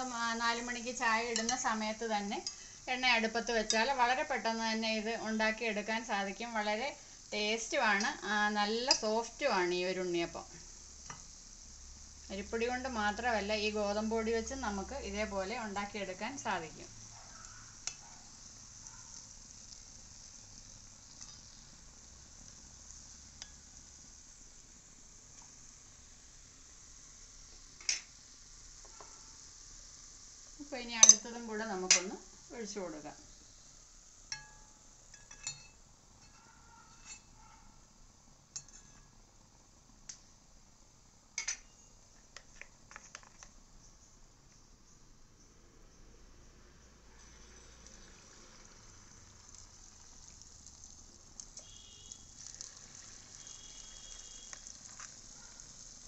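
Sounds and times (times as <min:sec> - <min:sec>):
oil sizzling in a pan: 0:00.0 - 0:56.0
metal utensils clicking on pan: 0:01.3 - 0:02.6, 0:03.6 - 0:04.0, 0:08.8 - 0:09.2, 0:17.4 - 0:18.0, 0:21.2 - 0:21.6, 0:27.8 - 0:28.1, 0:31.0 - 0:32.2, 0:34.3 - 0:37.3, 0:38.5 - 0:39.1, 0:41.4 - 0:41.8.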